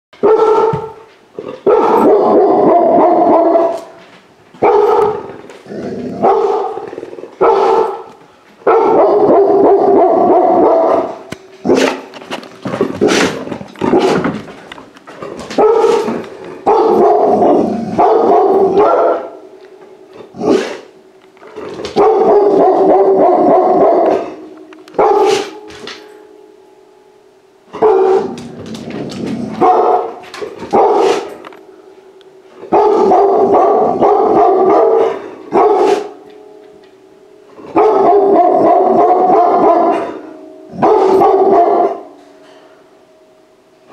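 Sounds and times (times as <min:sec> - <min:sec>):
puppy barking loudly: 0:00.2 - 0:04.0, 0:04.6 - 0:05.4, 0:06.2 - 0:06.8, 0:07.4 - 0:12.1, 0:15.6 - 0:19.4, 0:29.6 - 0:31.3, 0:37.8 - 0:40.1, 0:40.8 - 0:42.0.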